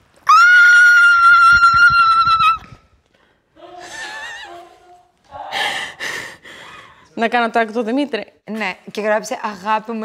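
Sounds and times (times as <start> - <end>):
woman squealing: 0.3 - 2.7
woman laughing: 3.8 - 4.8.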